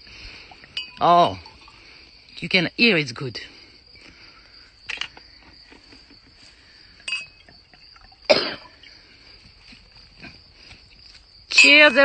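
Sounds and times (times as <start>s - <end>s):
crickets trilling: 0.0s - 12.0s
wine glass clink: 0.8s - 1.6s, 7.0s - 7.5s
person coughing: 8.3s - 8.8s.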